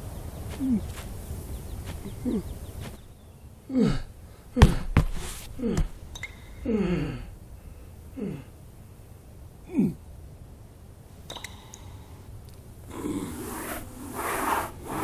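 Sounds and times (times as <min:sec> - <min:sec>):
man groaning and gasping: 0:03.7 - 0:06.0, 0:06.6 - 0:07.4, 0:08.1 - 0:08.5, 0:09.6 - 0:10.0.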